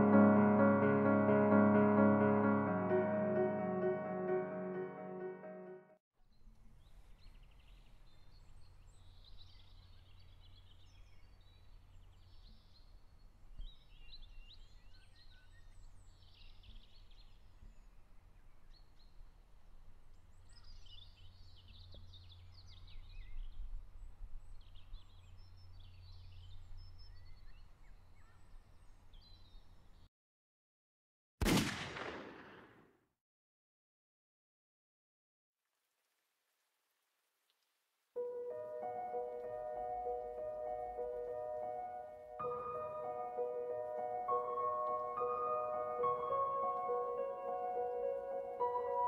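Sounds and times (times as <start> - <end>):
small birds chirping: 20.1 - 30.1.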